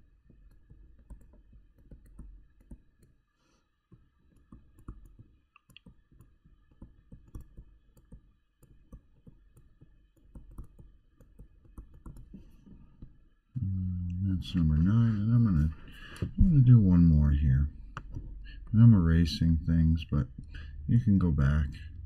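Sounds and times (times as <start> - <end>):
stylus tapping on touchscreen: 0.2 - 3.2, 3.9 - 13.2, 17.8 - 18.8.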